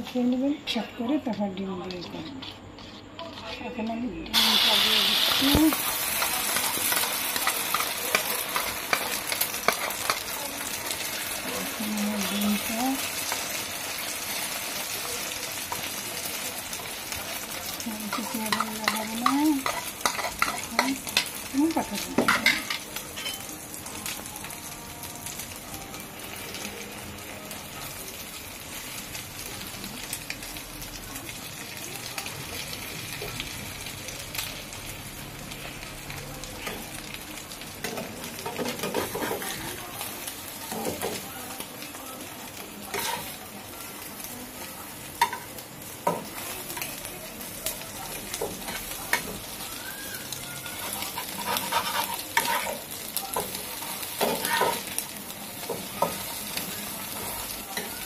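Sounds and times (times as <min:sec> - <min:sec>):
food sizzling in oil: 0:00.0 - 0:58.0
spatula scraping and tapping pan: 0:01.2 - 0:03.9, 0:18.1 - 0:21.3, 0:37.8 - 0:39.8, 0:42.9 - 0:43.3, 0:50.7 - 0:55.0.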